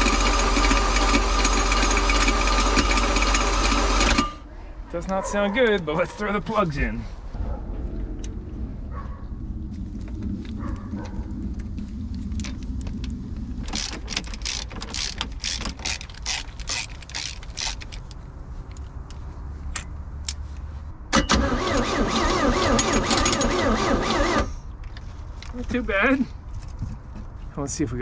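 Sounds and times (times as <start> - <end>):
starter motor cranking engine: 0.0 - 4.4, 13.6 - 18.0, 21.2 - 24.5.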